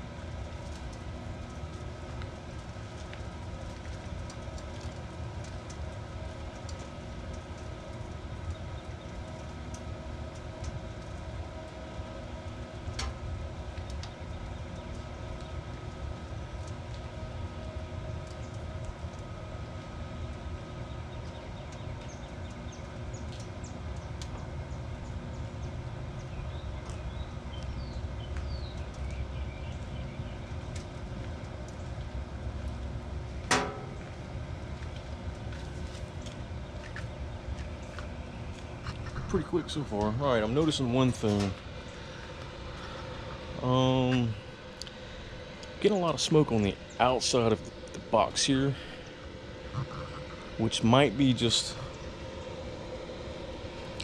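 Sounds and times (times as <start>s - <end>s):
fan humming: 0.0s - 54.0s
sharp metallic clank: 33.5s - 34.0s.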